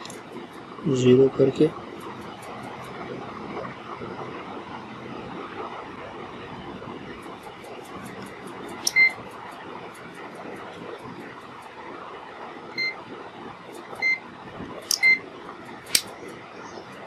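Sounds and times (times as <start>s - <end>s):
dial and button clicks: 14.9s - 15.2s.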